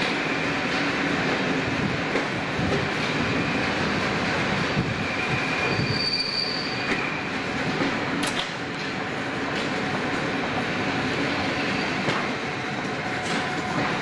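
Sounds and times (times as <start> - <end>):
train wheel running noise: 0.0 - 14.0
high wheel squeal: 5.0 - 7.3, 11.5 - 12.2.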